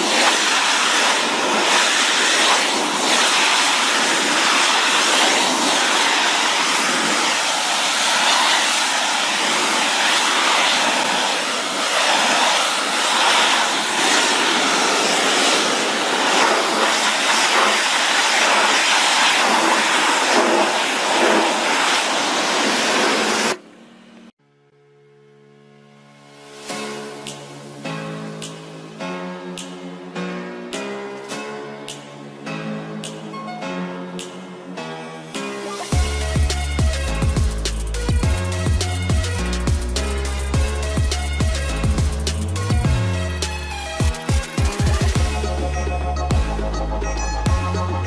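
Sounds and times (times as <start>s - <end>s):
pressure washer spraying stone: 0.0s - 23.7s, 35.7s - 45.5s.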